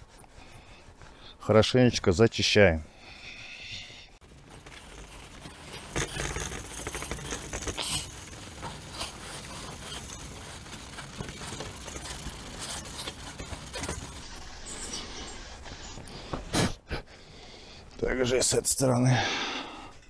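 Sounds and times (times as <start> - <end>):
cloth scrubbing metal gutter: 4.2 - 15.2.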